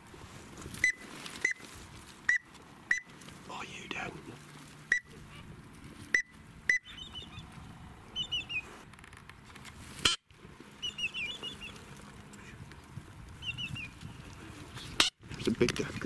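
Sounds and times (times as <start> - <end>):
duck high peeping whistles: 6.2 - 7.4, 8.2 - 8.6, 10.8 - 11.8, 13.4 - 13.9.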